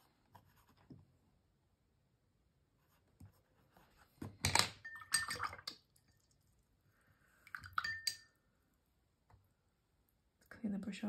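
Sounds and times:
thin ringing clink: 0:07.8 - 0:08.4.

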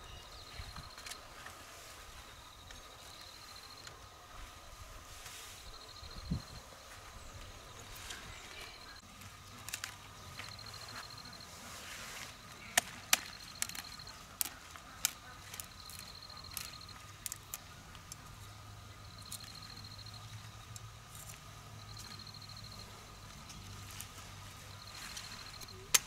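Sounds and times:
insect trilling: 0:12.3 - 0:23.7
sharp snaps and clicks: 0:12.7 - 0:18.3, 0:25.5 - 0:26.0.

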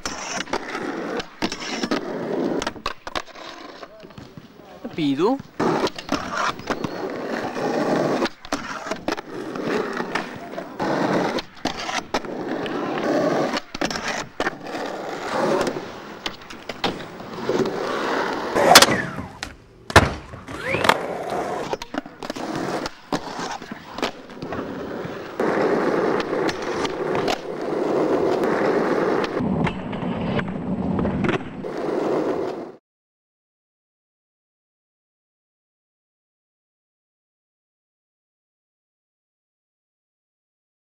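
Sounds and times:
skateboard tail pops and landings: 0:00.0 - 0:03.3, 0:05.5 - 0:32.8
skateboard wheels rolling on asphalt: 0:00.0 - 0:32.8.

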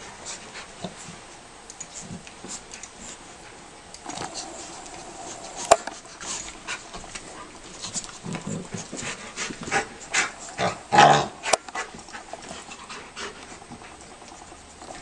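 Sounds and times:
dogs panting: 0:04.2 - 0:15.0.

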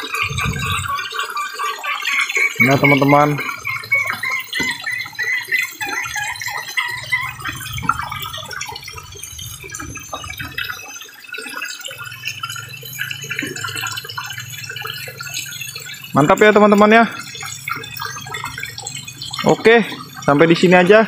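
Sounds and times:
hen clucking: 0:00.0 - 0:10.3
fish splashing water: 0:00.0 - 0:20.8.

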